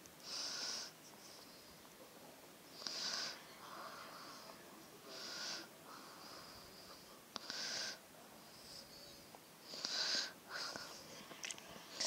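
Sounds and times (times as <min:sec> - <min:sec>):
person breathing: 0:02.8 - 0:08.0, 0:09.6 - 0:12.0.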